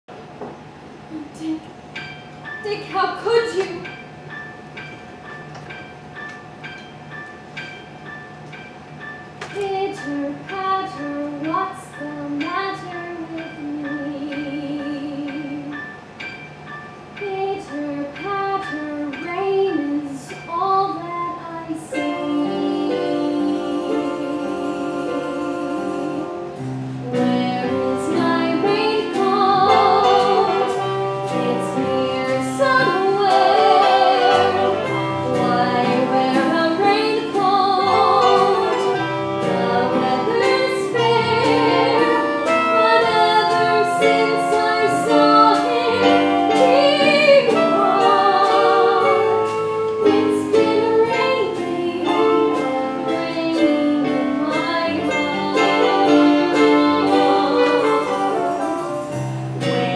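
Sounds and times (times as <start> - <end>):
woman singing with vibrato: 9.6 - 15.8, 17.2 - 58.8
pit band playing: 21.8 - 59.9.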